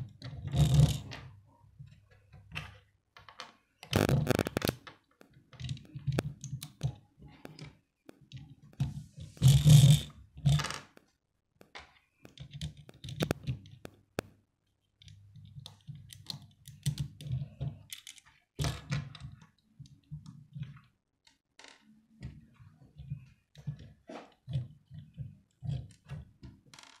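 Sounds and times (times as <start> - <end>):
plastic bricks clicking together: 3.3 - 5.0, 12.2 - 14.3.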